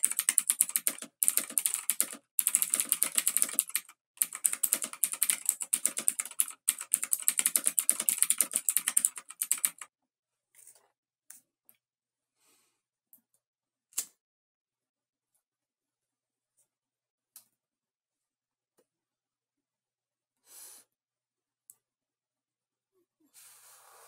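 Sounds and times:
rapid keyboard typing clicks: 0.0 - 9.9.

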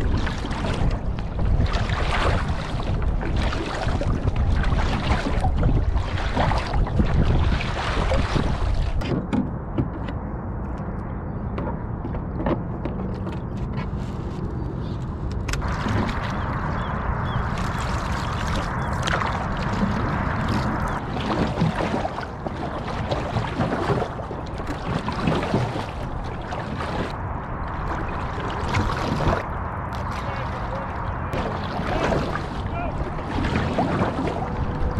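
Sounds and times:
paddle splashes: 0.0 - 9.2, 15.5 - 34.9
water rushing along canoe hull: 0.0 - 10.1, 15.5 - 34.9
wind buffeting microphone: 0.0 - 34.9.

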